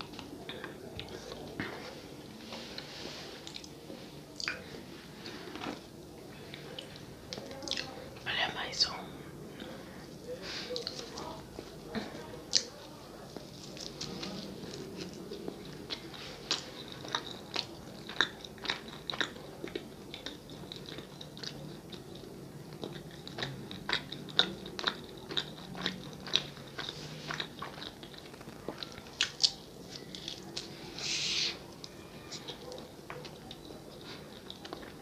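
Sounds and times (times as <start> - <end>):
wet chewing mouth clicks: 4.4 - 4.6, 6.6 - 8.0, 14.7 - 31.6.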